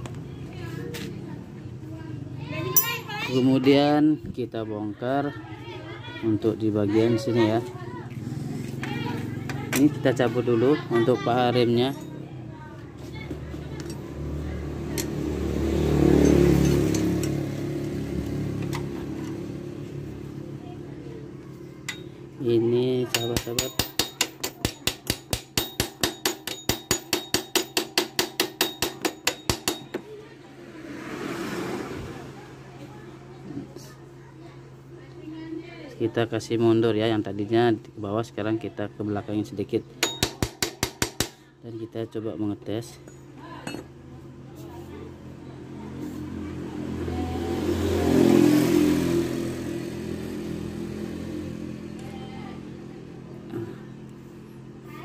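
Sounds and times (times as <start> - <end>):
steady engine hum: 4.6 - 41.7, 42.6 - 55.0
motor vehicle passing: 5.3 - 24.3, 29.8 - 35.8, 43.4 - 55.0.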